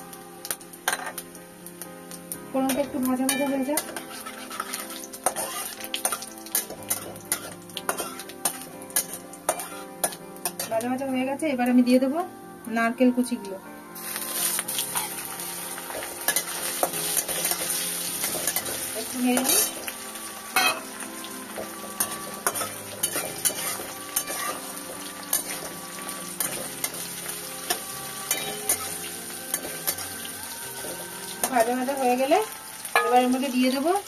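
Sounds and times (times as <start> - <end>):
coconut sizzling in hot oil: 0.0 - 11.2, 14.0 - 34.0
spatula scraping pan: 3.3 - 8.3, 22.0 - 25.8.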